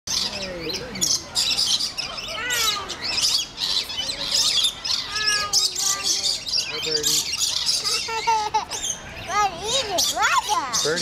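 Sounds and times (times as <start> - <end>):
lorikeets screeching and chattering: 0.1 - 11.0.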